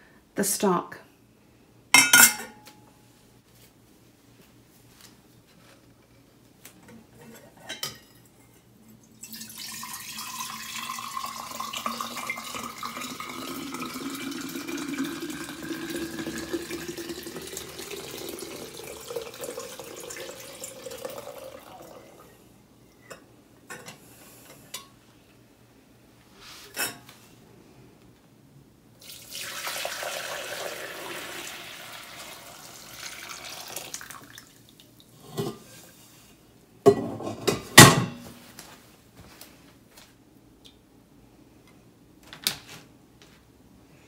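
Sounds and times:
glass clinks: 2.0 - 2.6
liquid pouring into glass jar: 9.2 - 22.2, 29.0 - 34.6.

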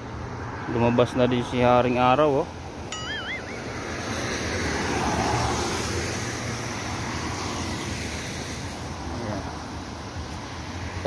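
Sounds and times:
tyres hissing on wet road: 4.4 - 11.0.

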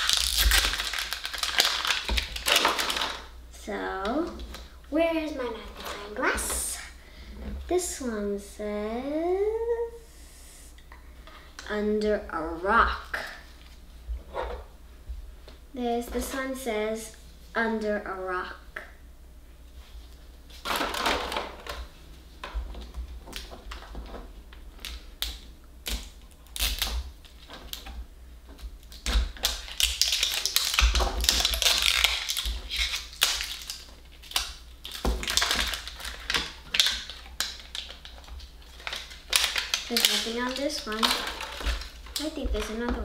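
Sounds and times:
plastic wrapping crinkling and tearing: 0.0 - 3.3, 24.8 - 27.9, 28.8 - 42.9.

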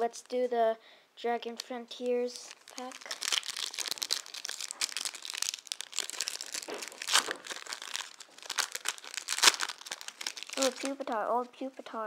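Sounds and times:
foil wrapper crinkling and tearing: 1.6 - 11.2.

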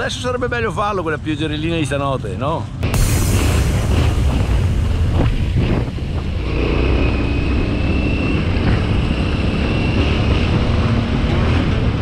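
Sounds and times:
steady whine: 2.8 - 10.0
motorcycle running: 3.0 - 12.0
wind buffeting microphone: 3.0 - 12.0.

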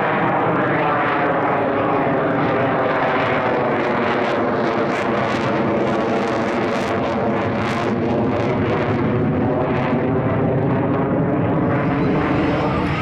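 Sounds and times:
jet roar overhead: 0.0 - 13.0.

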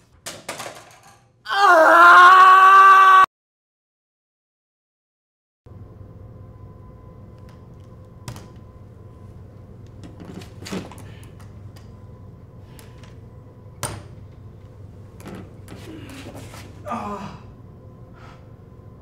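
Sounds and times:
low hum: 5.7 - 19.0.

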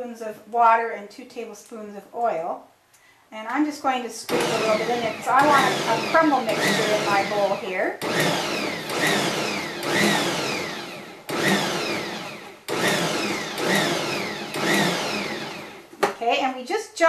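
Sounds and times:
stand mixer motor pulsing: 4.3 - 15.9.

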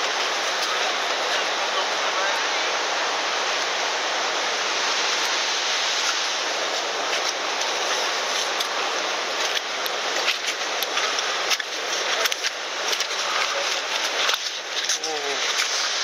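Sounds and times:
waterfall rushing: 0.0 - 16.0
footsteps crunching on icy slush: 5.9 - 16.0.

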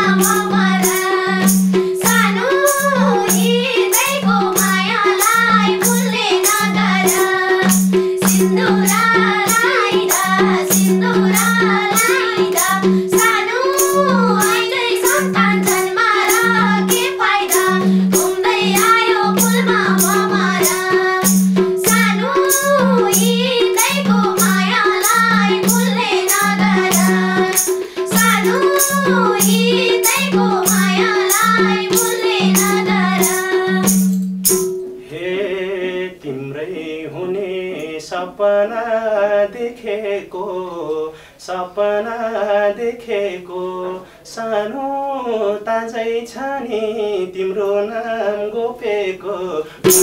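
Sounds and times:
women singing folk song: 0.0 - 34.1, 35.1 - 50.0
drum rhythm: 0.0 - 35.1, 49.8 - 50.0
sharp percussion strokes: 0.0 - 35.1, 49.8 - 50.0.

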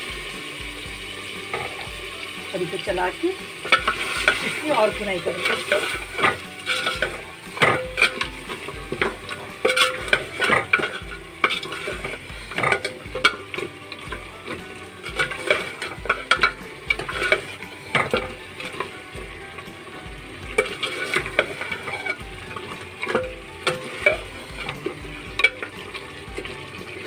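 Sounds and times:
food sizzling: 0.0 - 27.0
ladle scraping metal pot: 1.0 - 27.0
ladle knocking pot side: 5.3 - 19.3, 20.5 - 26.6.

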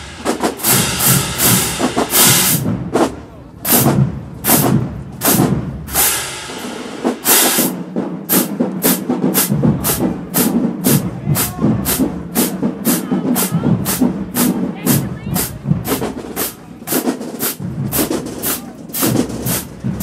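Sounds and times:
sharp crashing hits: 0.0 - 3.2
drumline playing marching cadence: 0.0 - 20.0
low drum pulse: 17.6 - 18.3.

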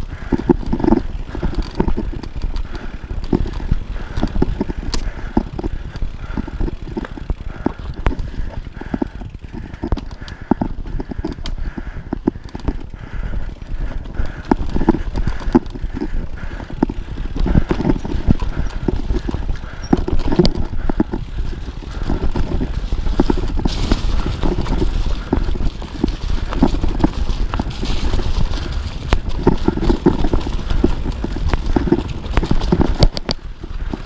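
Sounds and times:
bike knocking and rattling: 0.0 - 34.0
bike tyres rolling on dirt: 0.0 - 34.0
tyres hissing through dry leaves: 21.3 - 33.0.

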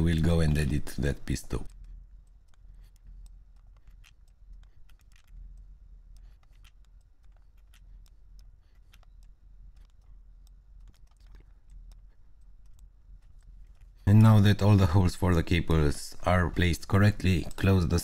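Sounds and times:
steady low hum: 0.0 - 18.0
faint computer mouse clicks: 1.2 - 14.4.

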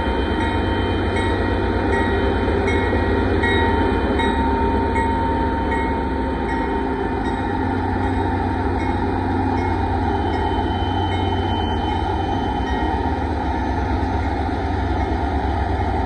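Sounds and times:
crossing signal bell ringing: 0.0 - 13.4
diesel locomotives rumbling past: 0.0 - 16.0.

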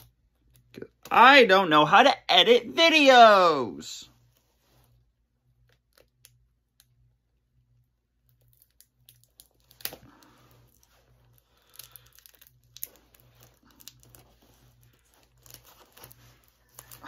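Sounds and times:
plastic shrink-wrap crinkling: 8.3 - 17.0.

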